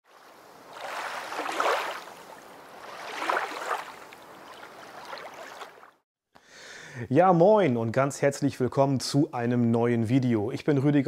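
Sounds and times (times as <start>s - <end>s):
rushing water surging: 0.1s - 5.9s.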